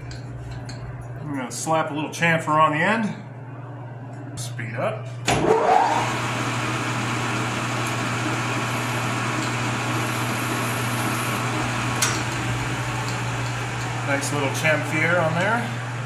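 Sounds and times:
metal lathe whirring: 5.4 - 16.0.

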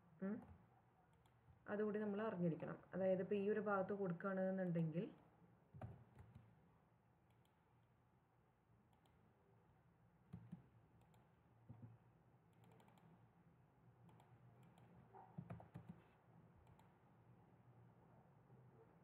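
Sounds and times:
mouse clicks: 12.5 - 13.1, 14.1 - 16.0, 16.6 - 16.9.

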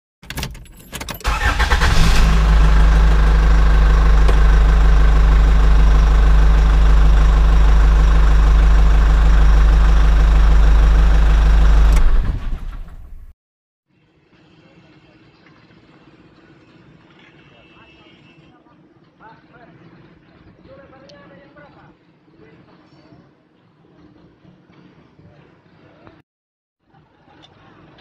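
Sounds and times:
engine starting and idling: 1.1 - 13.3.

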